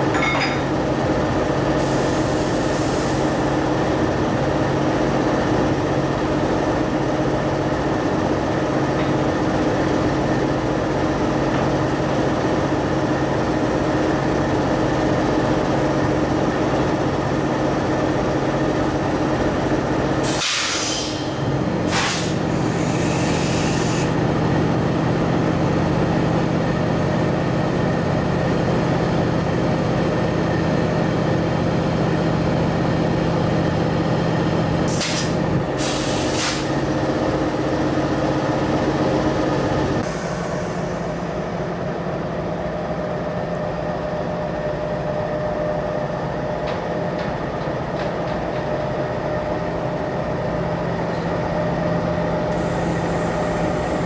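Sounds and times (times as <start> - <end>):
diesel locomotives idling: 0.0 - 54.0
air hissing: 20.2 - 24.1, 34.9 - 36.8, 52.5 - 54.0.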